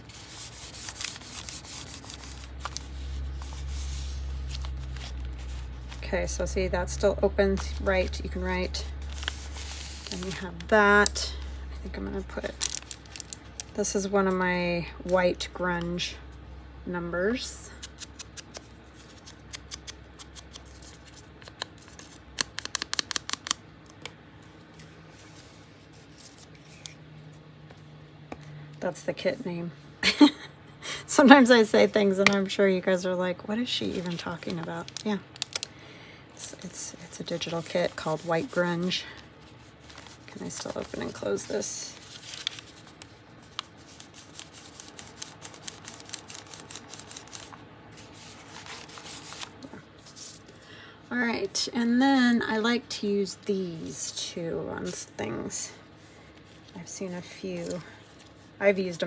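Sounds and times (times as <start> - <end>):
paper scratching on crafting tool: 0.0 - 5.6
paper rustling and crinkling: 0.0 - 6.2, 7.4 - 13.8, 24.4 - 27.8, 33.7 - 35.7, 36.4 - 50.6, 55.9 - 58.6.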